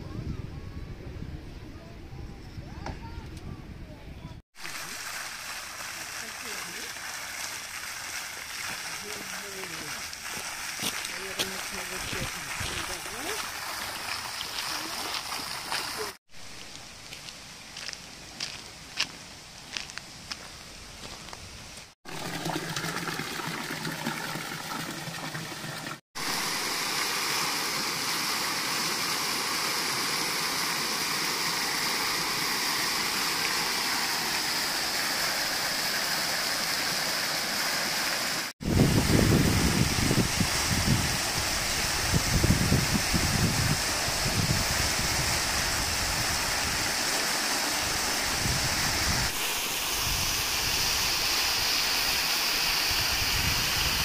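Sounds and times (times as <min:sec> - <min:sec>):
wind buffeting microphone: 0:00.0 - 0:04.4, 0:38.6 - 0:46.9, 0:47.9 - 0:49.4
fountains splashing: 0:04.6 - 0:18.6, 0:22.1 - 0:54.0
water cascading into pools: 0:04.6 - 0:19.9, 0:22.1 - 0:54.0.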